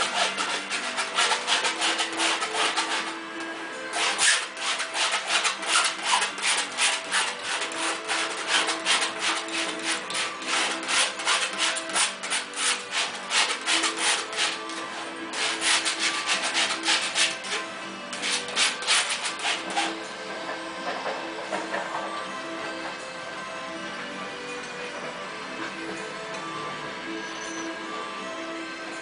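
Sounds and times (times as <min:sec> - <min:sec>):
paint scrubbed onto canvas: 0:00.0 - 0:03.2, 0:03.9 - 0:20.0.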